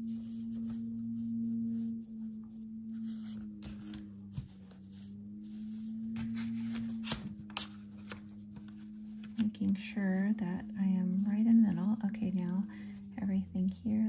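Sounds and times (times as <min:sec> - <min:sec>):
steady low humming tone: 0:00.0 - 0:14.0.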